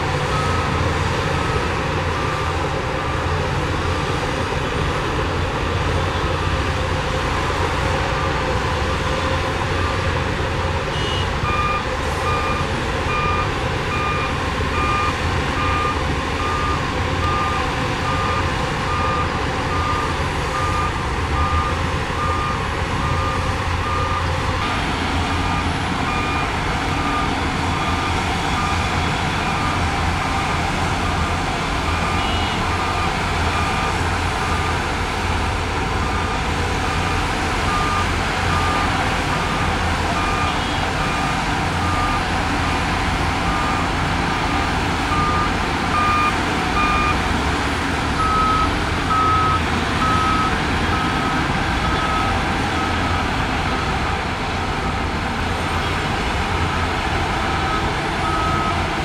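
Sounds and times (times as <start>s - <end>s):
diesel engines rumbling: 0.0s - 59.0s
reversing alarm beeping: 0.3s - 3.3s, 10.9s - 34.8s, 36.9s - 47.2s, 48.2s - 53.9s, 57.5s - 58.9s.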